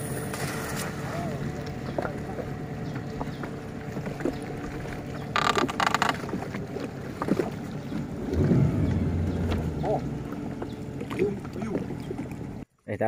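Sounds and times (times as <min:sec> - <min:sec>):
boat engine rumble: 0:00.0 - 0:12.7
water against hull: 0:00.0 - 0:12.7
loud rasping rustle: 0:05.3 - 0:06.4.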